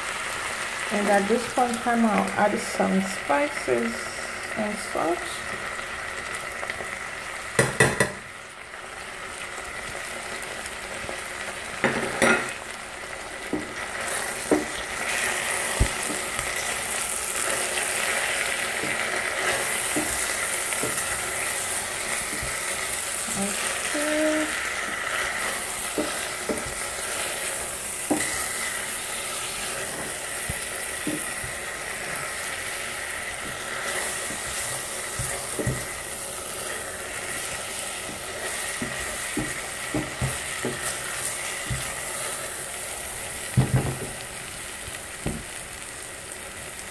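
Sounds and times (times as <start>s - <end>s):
vegetables sizzling in oil: 0.0s - 46.9s
spatula knocking and scraping pot: 14.4s - 16.5s, 18.7s - 21.2s, 25.1s - 27.3s, 28.0s - 28.8s, 31.0s - 32.2s, 33.4s - 36.0s, 38.0s - 42.0s.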